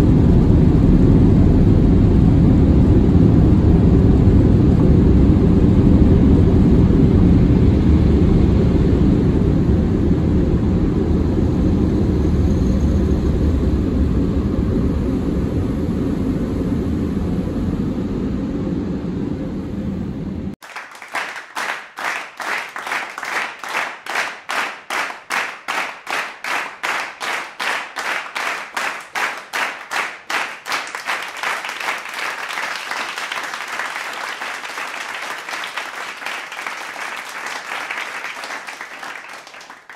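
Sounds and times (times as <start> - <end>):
continuous applause: 20.6 - 39.9
crowd clapping in unison: 20.6 - 39.9.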